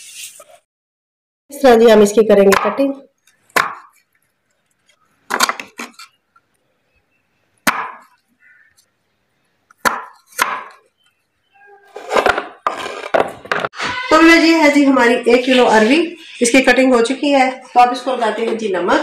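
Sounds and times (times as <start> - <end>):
knife chopping root: 7.6 - 8.0, 9.8 - 10.8.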